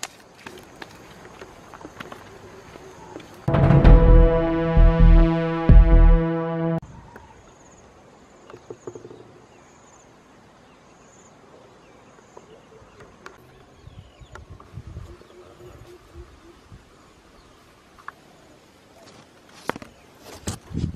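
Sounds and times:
footsteps on loose stones: 0.0s - 3.4s
intro music: 3.5s - 6.8s.

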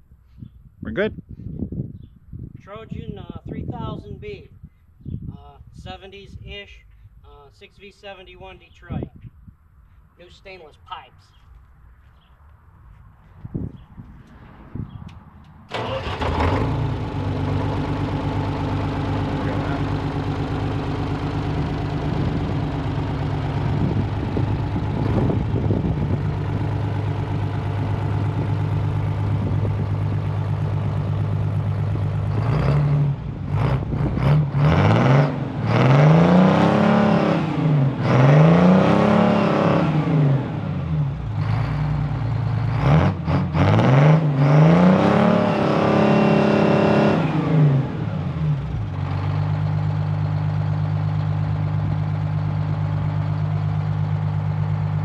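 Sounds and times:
diesel engine idling and revving: 12.7s - 55.0s.

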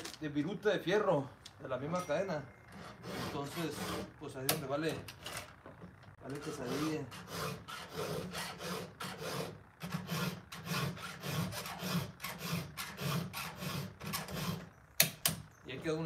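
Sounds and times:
file rasping on chain teeth: 2.8s - 4.1s, 6.4s - 14.7s.

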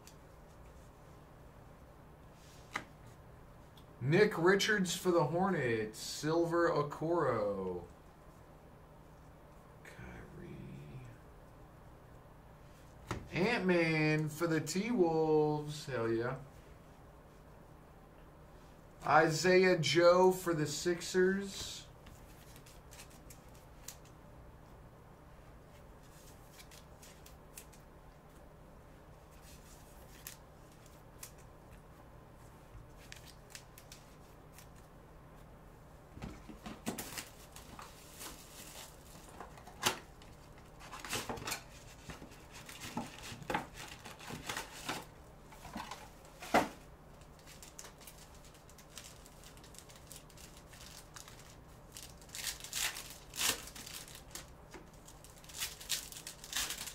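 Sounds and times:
card wrappers rustling and tearing: 22.2s - 24.1s, 26.0s - 27.8s, 29.3s - 31.5s, 32.9s - 34.9s, 36.6s - 46.6s, 47.2s - 56.9s.

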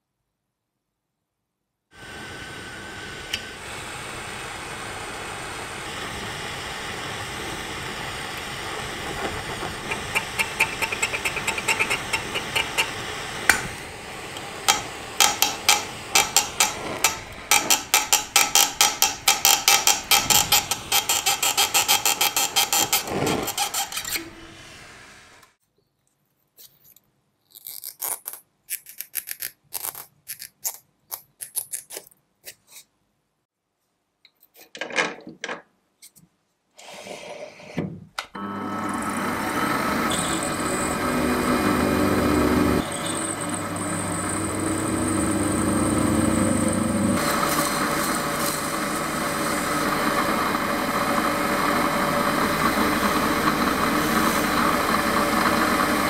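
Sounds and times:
gas torch flame hissing: 2.0s - 18.6s, 19.9s - 25.5s, 39.8s - 56.0s
rapid metallic clicks and taps: 9.8s - 13.6s, 14.7s - 22.5s.

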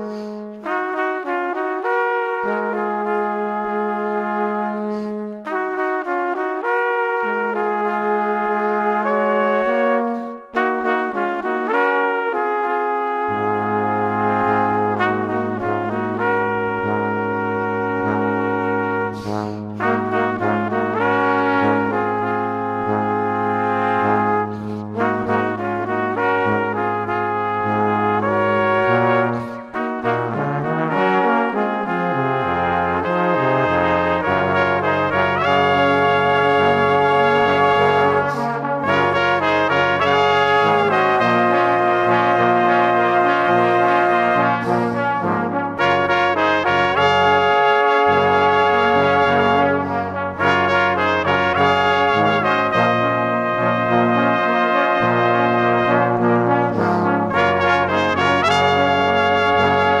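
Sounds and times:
brass music with held chords: 0.0s - 60.0s.

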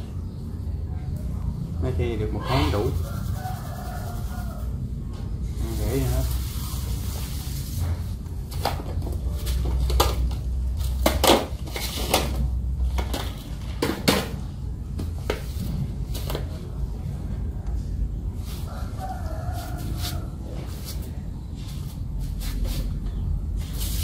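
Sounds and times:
rooster crowing: 2.4s - 5.0s, 18.4s - 20.8s.

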